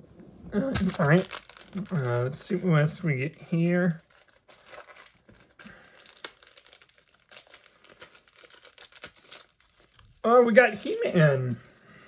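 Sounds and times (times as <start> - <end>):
packaging crinkling and clicking: 0.7 - 3.2, 4.0 - 11.1.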